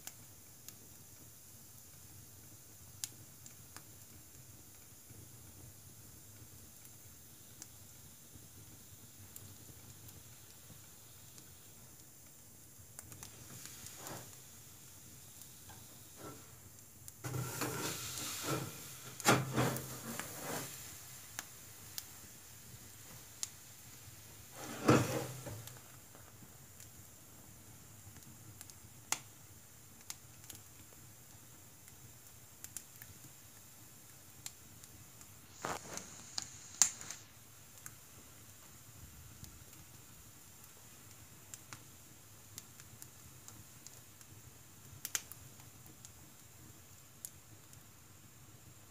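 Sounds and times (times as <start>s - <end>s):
wood fire crackling: 0.0s - 48.9s
rustling noise: 13.2s - 14.6s, 15.6s - 16.6s, 17.2s - 21.9s, 24.4s - 26.3s, 35.4s - 37.3s.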